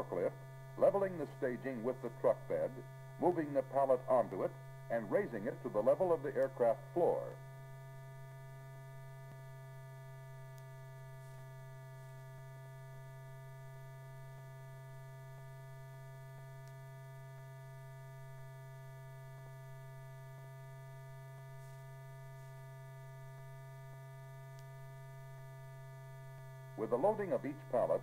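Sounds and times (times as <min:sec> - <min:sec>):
faint steady tones: 0:00.0 - 0:28.0
low electrical hum: 0:00.0 - 0:28.0
faint ticks: 0:10.5 - 0:11.5.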